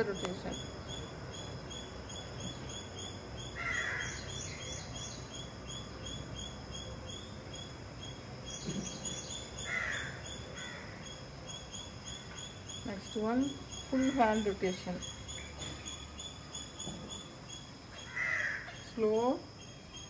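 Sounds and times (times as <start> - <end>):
crow cawing: 3.6 - 4.4, 9.6 - 11.0, 18.0 - 18.8.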